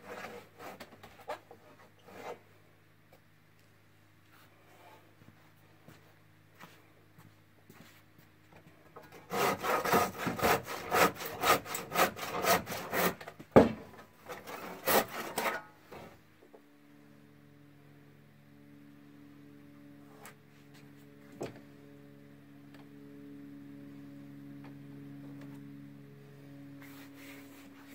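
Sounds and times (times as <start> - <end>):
faint steady hum: 0.0 - 27.9
handsaw cutting wood: 9.1 - 13.3, 14.2 - 16.1.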